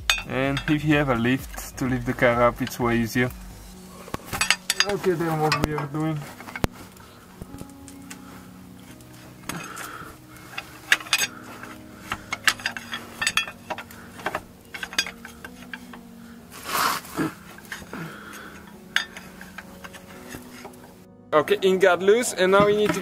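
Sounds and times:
pry bar clinking against metal: 0.0 - 0.8, 4.2 - 5.9, 10.5 - 15.9.

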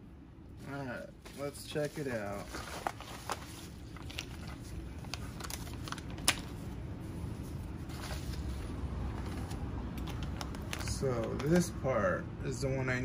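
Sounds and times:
paper and plastic crinkling: 0.7 - 6.8, 7.4 - 11.6.

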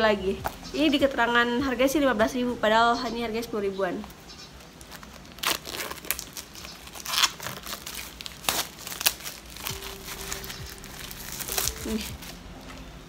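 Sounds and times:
plastic wrapping crinkling and tearing: 4.5 - 12.9.

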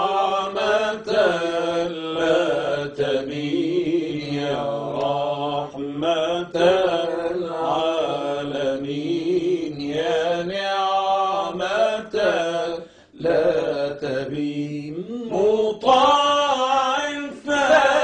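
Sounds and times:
person singing ornamented vocal line: 0.0 - 18.0.

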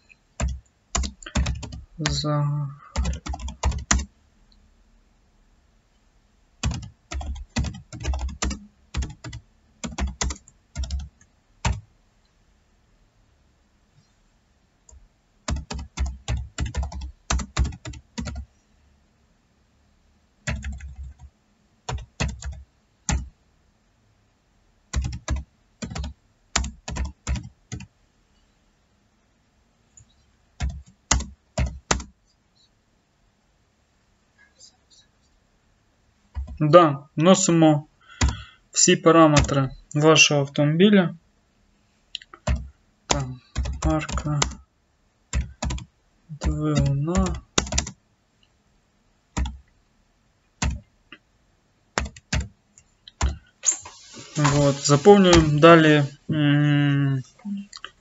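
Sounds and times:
typing on computer keyboard: 0.4 - 2.2, 2.9 - 4.1, 6.6 - 11.8, 14.9 - 18.5, 20.4 - 21.3, 21.9 - 23.3, 24.9 - 27.9, 30.6 - 32.2, 38.2 - 38.5, 39.4 - 39.6, 42.4 - 44.6, 45.3 - 48.0, 49.4 - 49.6, 50.6 - 50.8, 52.0 - 52.5, 53.1 - 55.5.

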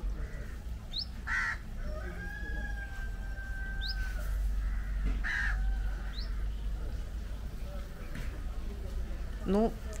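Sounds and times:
small bird chirping: 0.9 - 1.2
rooster crowing: 1.4 - 6.2.

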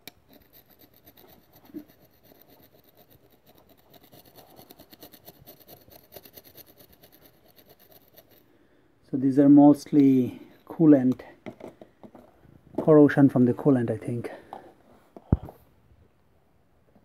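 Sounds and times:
screwdriver scraping metal: 0.0 - 8.5.

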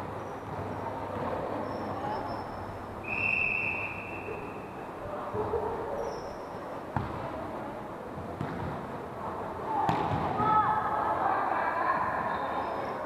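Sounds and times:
referee's whistle: 3.0 - 4.4.

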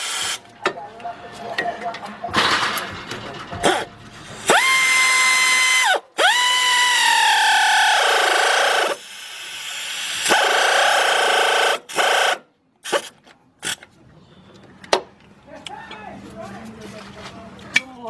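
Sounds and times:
pneumatic air ratchet whining: 0.0 - 0.4, 3.6 - 13.8.

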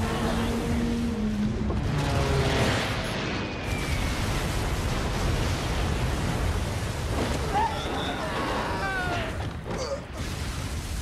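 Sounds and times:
explosions: 1.6 - 8.4.

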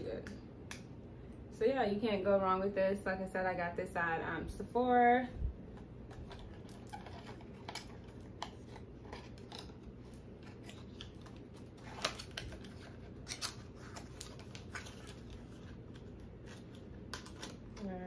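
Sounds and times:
cardboard packaging rustling: 5.7 - 18.0.

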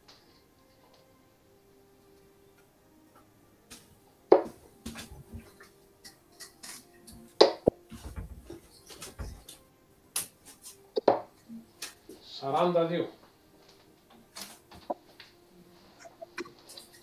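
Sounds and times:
darts clicking and knocking: 3.7 - 12.0.

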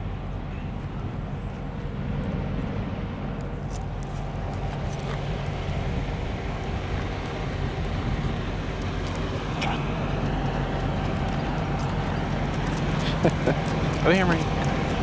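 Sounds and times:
vehicle engines rumbling: 0.0 - 15.0.

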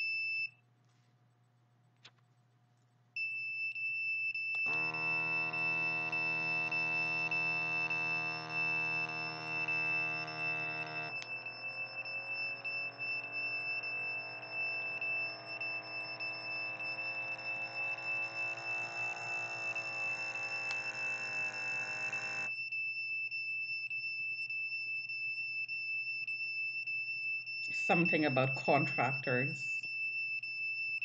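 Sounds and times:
high-pitched electronic alarm tone: 3.2 - 23.0
droning low electronic tones: 4.7 - 22.5.

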